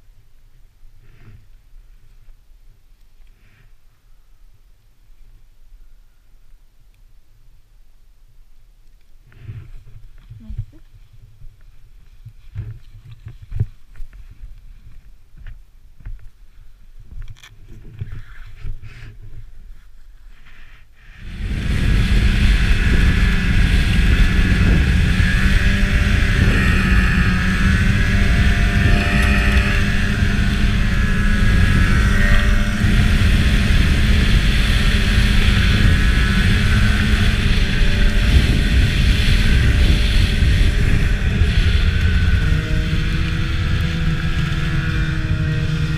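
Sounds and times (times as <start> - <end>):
snowmobile engine running: 21.1 - 45.9.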